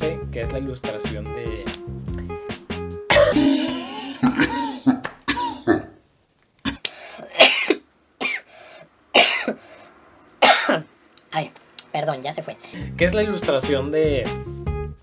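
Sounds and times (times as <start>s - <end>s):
man coughing: 3.1s - 5.8s, 7.1s - 8.5s, 9.2s - 9.6s, 10.4s - 10.9s
man clearing throat: 3.1s - 5.9s, 7.2s - 8.5s, 9.2s - 9.6s, 10.4s - 10.9s.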